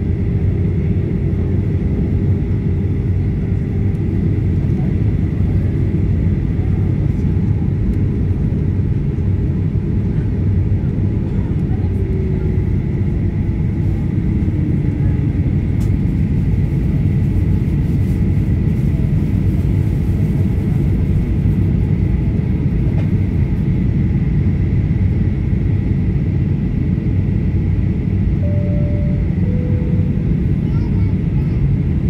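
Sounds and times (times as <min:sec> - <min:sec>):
airliner cabin rumble: 0:00.0 - 0:32.0
thin steady whine: 0:28.4 - 0:31.6.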